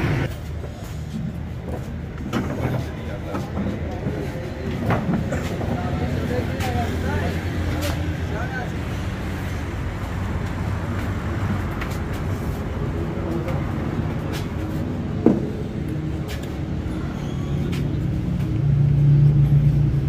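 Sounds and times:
low mechanical rumble: 0:14.8 - 0:20.0.

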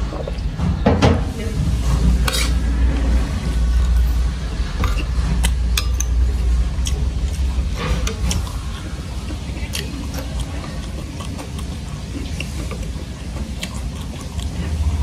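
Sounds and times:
steady low hum: 0:00.0 - 0:15.0
spoon clinking on ceramic bowls: 0:05.7 - 0:06.2.

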